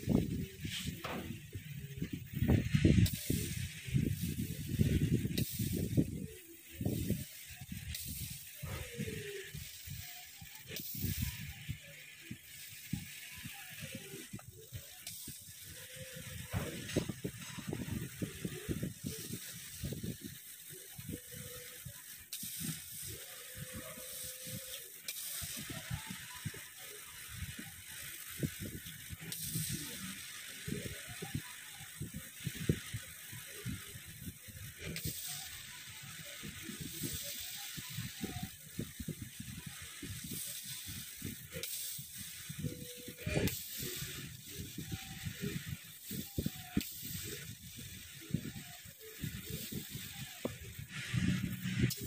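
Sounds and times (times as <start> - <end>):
laser cutter motors whining: 0.0 - 52.0
steady hiss: 0.0 - 52.0.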